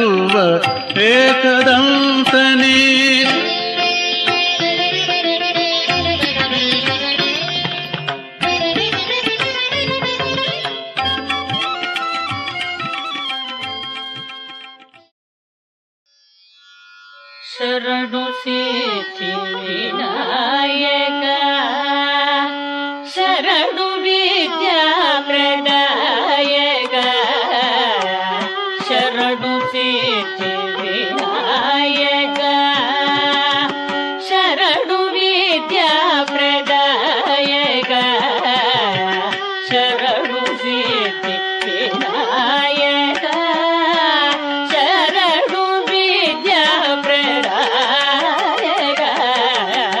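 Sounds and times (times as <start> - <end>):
devotional instrumental melody: 0.0 - 15.1.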